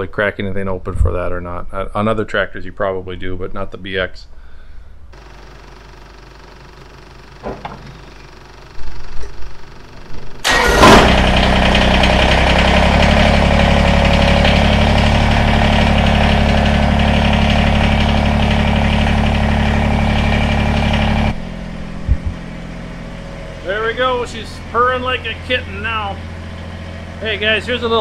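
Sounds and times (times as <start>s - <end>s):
diesel engine running: 5.2s - 28.0s
starter cranking engine: 10.1s - 21.4s.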